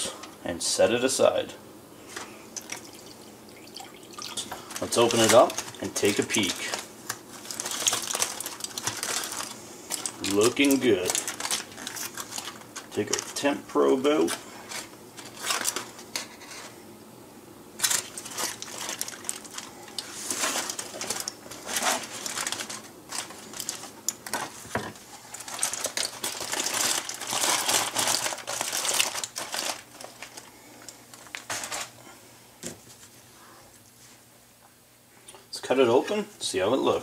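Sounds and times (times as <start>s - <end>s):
aluminium foil crinkling: 2.6s - 16.8s, 17.8s - 32.0s.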